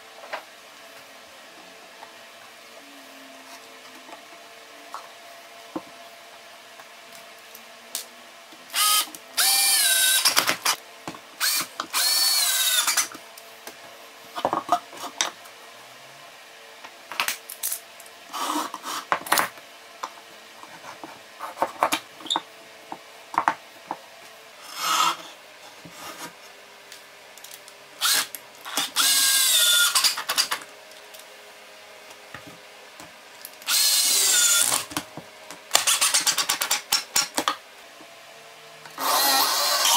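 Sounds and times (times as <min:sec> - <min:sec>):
cordless drill driving screws: 0:08.7 - 0:10.7, 0:11.4 - 0:13.1, 0:28.0 - 0:30.6, 0:33.6 - 0:34.9, 0:35.7 - 0:36.5, 0:39.0 - 0:39.9.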